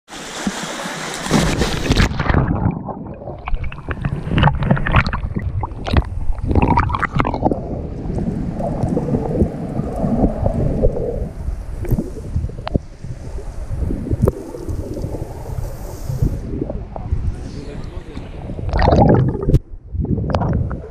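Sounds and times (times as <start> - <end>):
underwater clicks and knocks: 1.2 - 8.2
underwater water rumble: 1.2 - 20.9
splashing hiss: 11.4 - 16.6.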